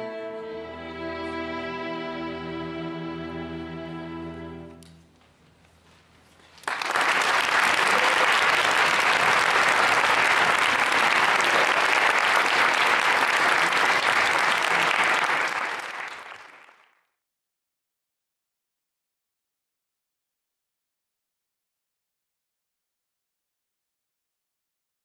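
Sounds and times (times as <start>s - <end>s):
string orchestra chord: 0.0s - 5.0s
audience applause: 6.6s - 17.0s.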